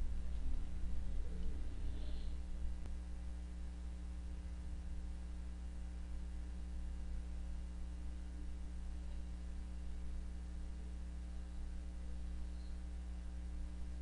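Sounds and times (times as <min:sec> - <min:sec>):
faint hiss: 0:00.0 - 0:03.0
electrical mains hum: 0:00.0 - 0:14.0.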